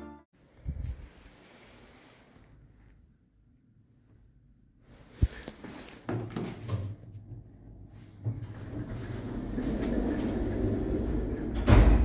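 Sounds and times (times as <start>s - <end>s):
lift mechanical rumble: 7.3s - 12.0s.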